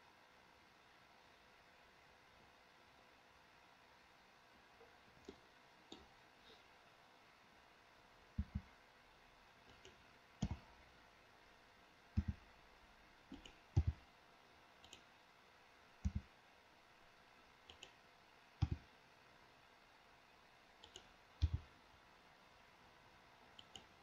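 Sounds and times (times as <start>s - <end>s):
computer mouse and keyboard clicks: 8.4s - 8.7s, 9.7s - 10.7s, 12.2s - 12.4s, 13.3s - 14.0s, 14.8s - 15.1s, 16.0s - 16.3s, 17.7s - 18.0s, 18.6s - 18.9s, 20.8s - 21.7s, 23.6s - 24.0s.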